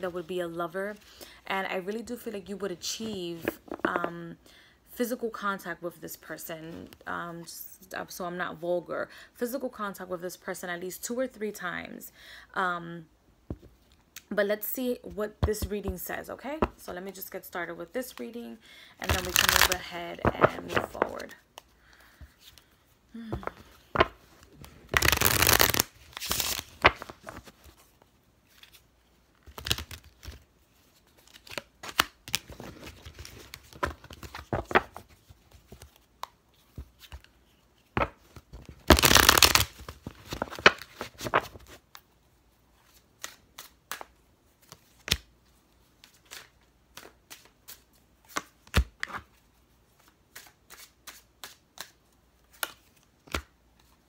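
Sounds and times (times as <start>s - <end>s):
cards being shuffled: 3.0s - 4.1s, 19.0s - 28.8s, 29.4s - 42.0s, 42.8s - 45.3s, 46.0s - 49.4s, 50.0s - 53.9s
cards riffling: 19.0s - 21.2s, 23.4s - 27.5s, 38.6s - 41.7s.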